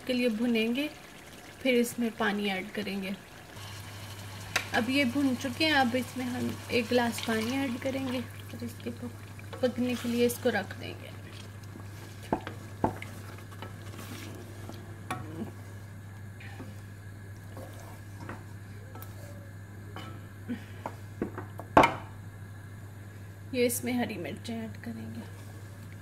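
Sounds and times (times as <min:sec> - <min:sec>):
steady low hum: 0:00.0 - 0:26.0
spatula stirring curry: 0:05.1 - 0:15.7.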